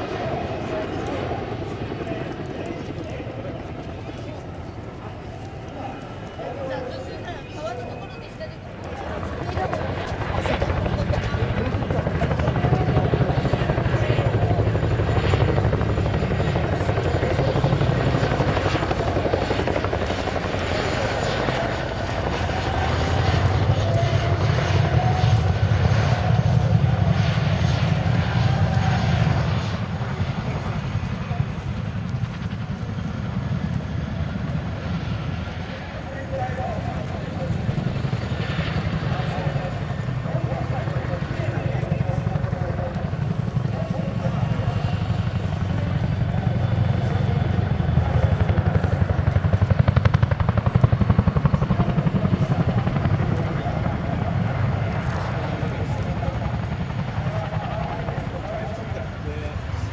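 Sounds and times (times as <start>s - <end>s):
helicopter rotors thudding: 0.0s - 59.8s
turbine engine whine: 0.0s - 59.9s.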